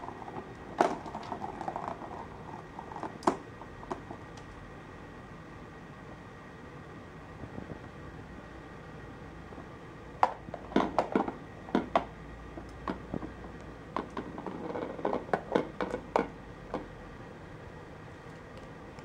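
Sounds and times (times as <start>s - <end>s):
ball knocking in plastic track: 0.0s - 4.3s, 10.2s - 16.9s.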